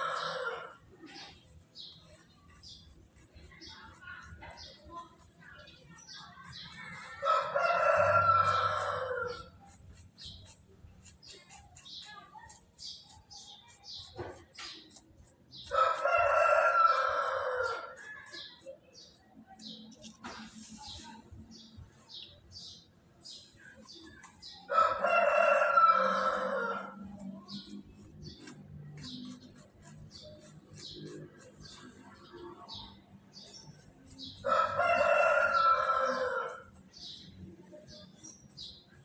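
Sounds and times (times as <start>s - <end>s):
hands working wet mortar: 0.0s - 21.8s, 23.3s - 39.0s
rooster crowing: 34.5s - 36.5s.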